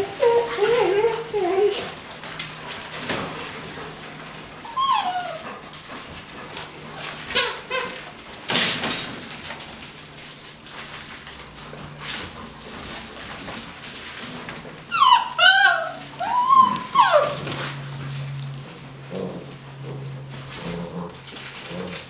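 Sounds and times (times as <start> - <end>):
puppies yipping and whining: 0.0 - 2.7, 3.4 - 8.8, 14.7 - 18.3
puppies scuffling: 0.0 - 22.0.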